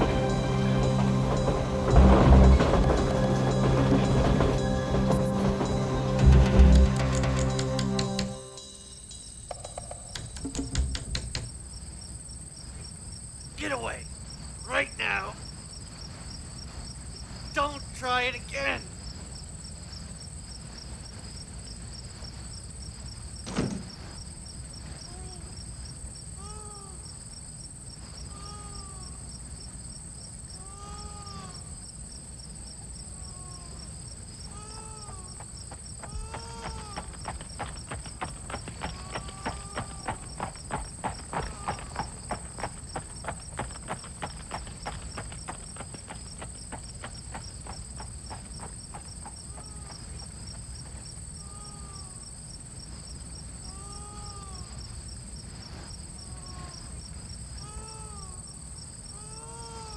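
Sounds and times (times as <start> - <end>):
insects trilling: 0.0 - 59.9
regular knocking: 9.5 - 11.8
thump: 23.4 - 24.2.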